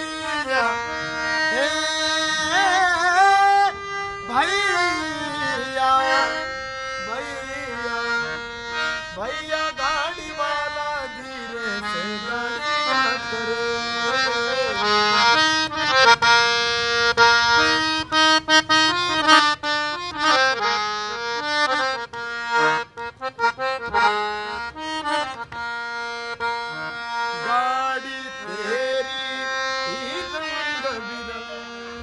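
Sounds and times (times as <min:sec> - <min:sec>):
harmonium melody: 0:00.0 - 0:32.0.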